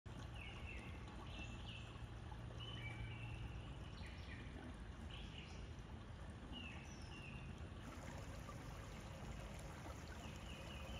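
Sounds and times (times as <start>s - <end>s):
creek water over rocks: 0.1s - 10.9s.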